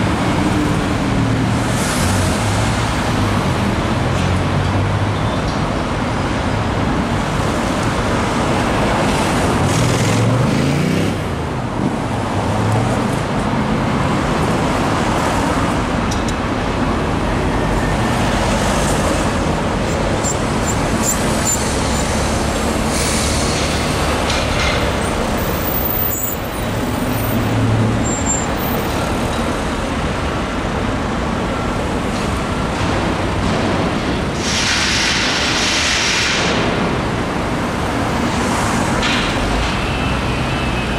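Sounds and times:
street traffic passing: 0:00.0 - 0:40.9
sharp hiss: 0:34.4 - 0:36.6.

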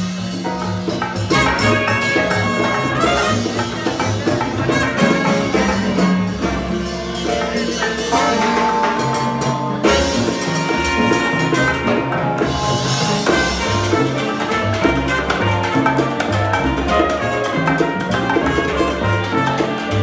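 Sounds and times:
latin jazz band playing: 0:00.0 - 0:20.0
trombone: 0:00.0 - 0:20.0
saxophone: 0:01.3 - 0:06.8, 0:09.9 - 0:20.0.

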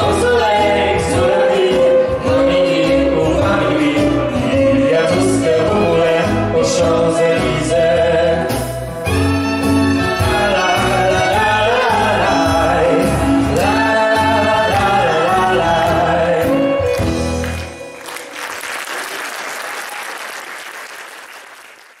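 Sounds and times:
woman and man singing duet: 0:00.0 - 0:08.6, 0:10.2 - 0:16.8
instrumental accompaniment with violin: 0:00.0 - 0:18.4
audience applauding: 0:16.9 - 0:22.0.

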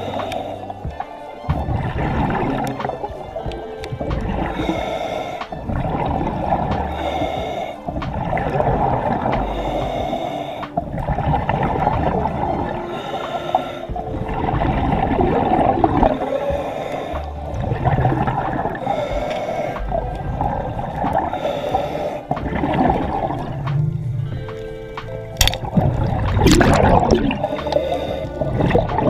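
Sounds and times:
rasping breath-like sounds: 0:00.0 - 0:29.0
underwater water noise: 0:00.0 - 0:29.0.

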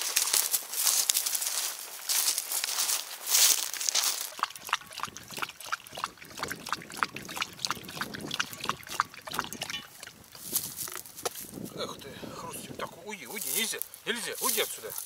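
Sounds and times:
dog chewing wetly: 0:03.9 - 0:11.0.

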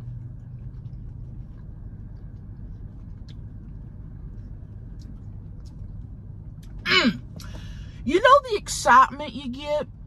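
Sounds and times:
chewing clicks: 0:00.0 - 0:06.8
car engine idling: 0:00.0 - 0:10.0.

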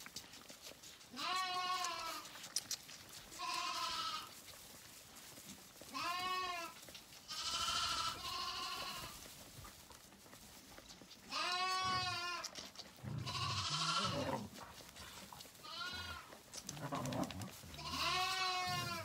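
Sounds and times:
lambs bleating: 0:01.1 - 0:02.4, 0:03.3 - 0:04.4, 0:05.9 - 0:09.2, 0:11.3 - 0:14.6, 0:15.5 - 0:19.0.

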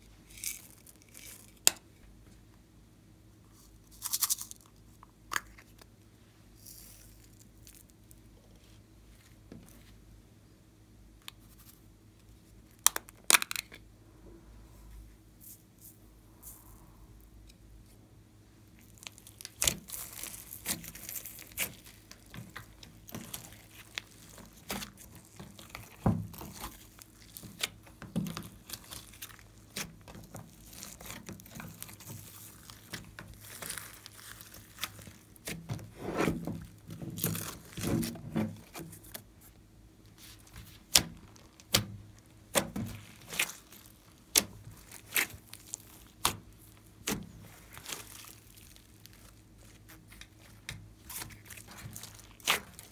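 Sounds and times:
wet crackling slime: 0:18.6 - 0:52.9.

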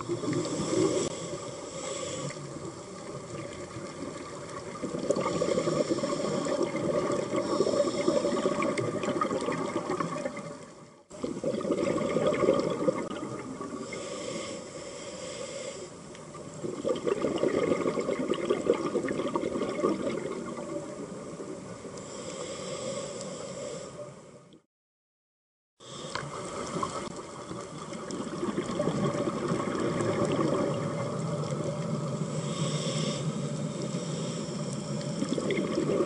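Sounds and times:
regulator inhalation hiss: 0:00.1 - 0:02.6, 0:05.2 - 0:06.6, 0:13.8 - 0:16.0, 0:22.0 - 0:24.2, 0:32.2 - 0:35.3
bubbling underwater exhalation: 0:04.7 - 0:10.5, 0:11.2 - 0:13.6, 0:16.6 - 0:20.7, 0:28.1 - 0:31.2, 0:35.2 - 0:36.0.

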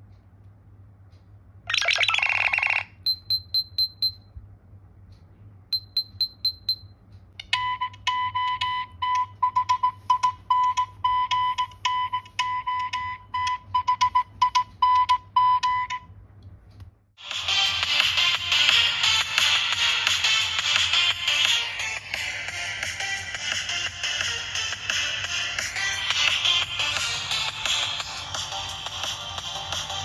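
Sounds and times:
ringtone of clicks and beeps: 0:01.7 - 0:04.2, 0:05.8 - 0:16.1.

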